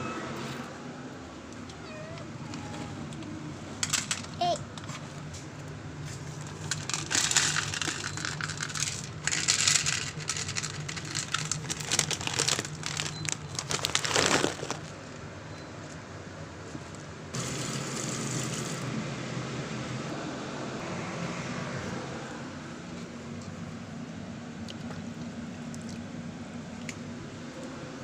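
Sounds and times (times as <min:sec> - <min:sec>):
dry kibble rattling into bowl: 0:06.4 - 0:15.0
plastic bag crinkling: 0:06.4 - 0:15.2.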